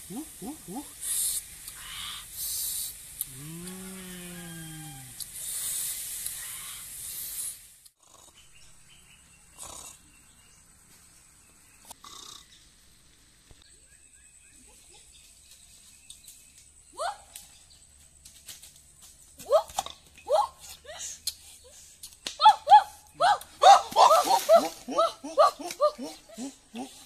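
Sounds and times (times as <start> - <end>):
octopus sizzling in a wok: 0.2 - 3.4, 4.7 - 7.9
short rising snore: 9.6 - 10.1.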